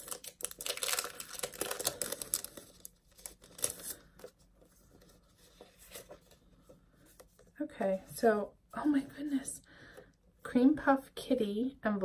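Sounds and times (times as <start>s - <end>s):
paper packaging rustling: 0.0s - 6.5s.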